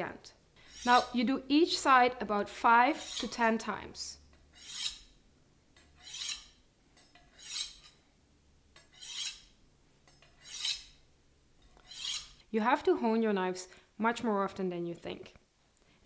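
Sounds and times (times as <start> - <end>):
knife scraping on honing rod: 0.6 - 1.2, 2.9 - 3.5, 4.4 - 5.2, 5.8 - 8.0, 8.8 - 11.0, 11.6 - 12.4.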